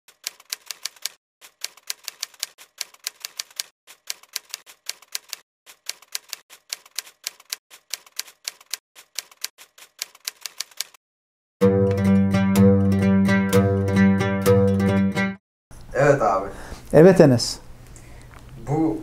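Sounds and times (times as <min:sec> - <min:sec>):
keyboard typing clicks: 0:00.2 - 0:11.0.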